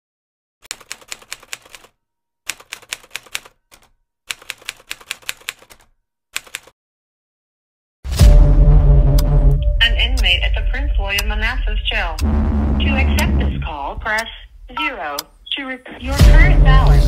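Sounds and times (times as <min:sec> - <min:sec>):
typewriter key clicks: 0:02.5 - 0:06.7.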